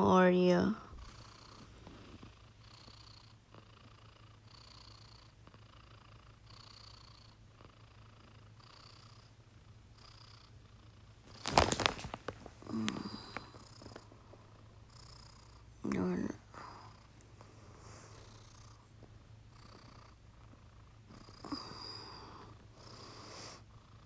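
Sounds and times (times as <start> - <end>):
cat snoring softly: 0.8 - 11.2, 12.6 - 24.0
loud rustle: 11.3 - 12.6.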